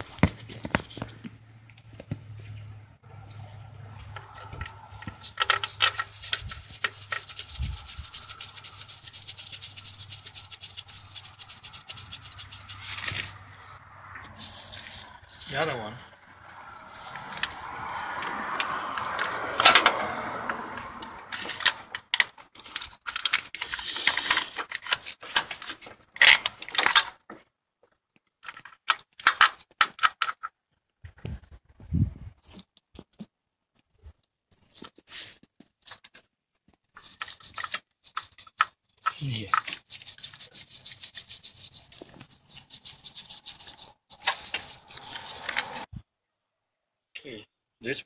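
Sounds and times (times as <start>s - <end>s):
connectors clicking and rattling: 4.1s - 13.4s, 21.3s - 30.6s, 35.6s - 45.9s.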